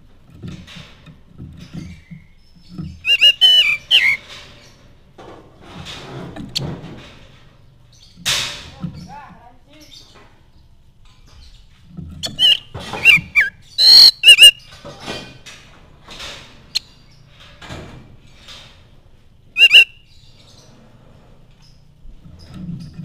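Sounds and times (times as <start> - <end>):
bird calling with whistles and harsh notes: 1.8 - 4.8, 12.2 - 14.8, 19.6 - 20.7.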